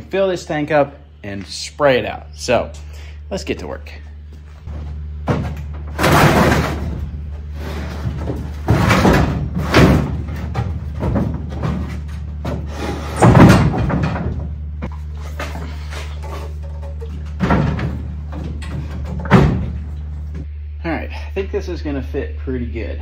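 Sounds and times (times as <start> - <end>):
low steady hum: 0.0 - 23.0
heavy parts knocking and thudding: 4.6 - 20.5.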